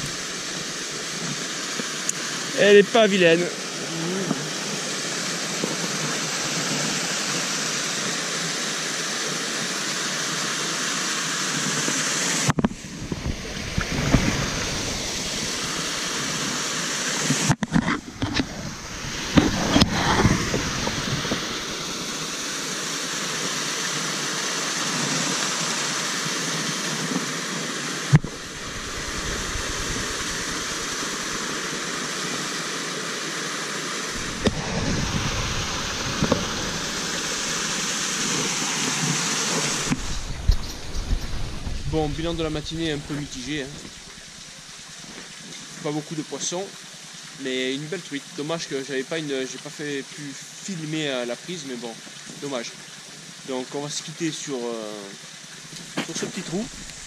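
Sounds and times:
small waterfall rushing: 0:00.0 - 0:57.0
camera rustling against clothing: 0:39.8 - 0:44.2.

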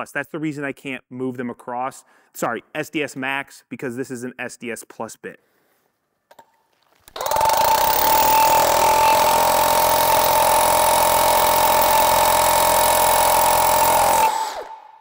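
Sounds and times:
rotary hammer drilling into concrete: 0:07.2 - 0:14.9.

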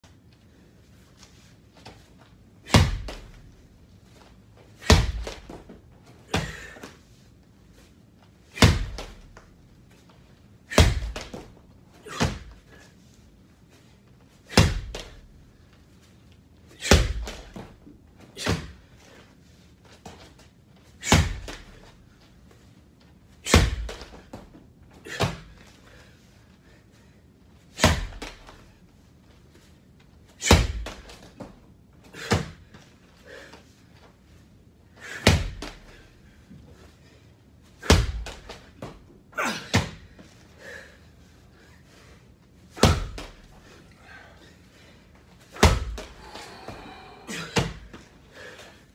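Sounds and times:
slam ball thudding on mat: 0:02.7 - 0:03.3, 0:04.8 - 0:05.5, 0:08.6 - 0:09.2, 0:10.8 - 0:11.5, 0:42.8 - 0:43.4, 0:45.6 - 0:46.2.

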